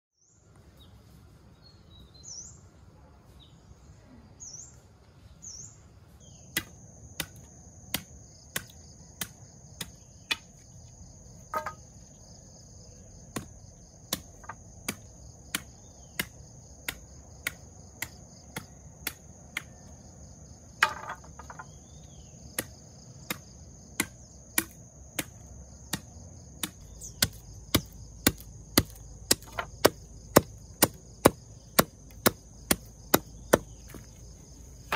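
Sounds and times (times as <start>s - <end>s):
high insect drone: 5.5s - 34.9s
blade chopping bamboo: 6.5s - 10.6s, 11.5s - 11.8s, 13.2s - 19.9s, 20.8s - 21.7s, 22.6s - 34.2s.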